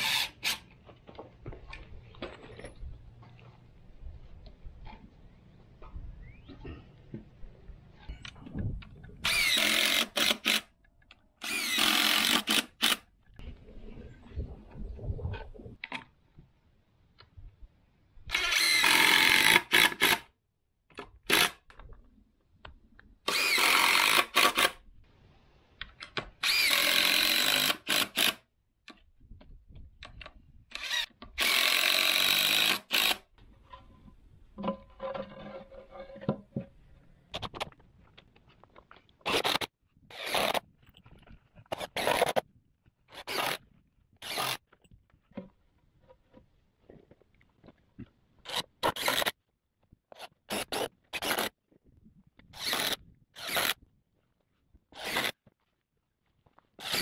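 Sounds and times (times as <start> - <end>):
impact driver driving screws: 52.6 - 53.8, 55.0 - 55.4.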